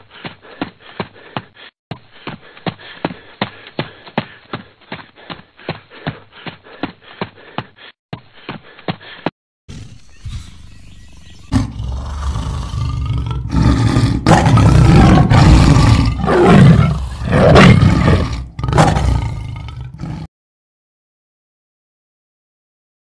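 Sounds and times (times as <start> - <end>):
lion roaring: 11.5 - 20.3.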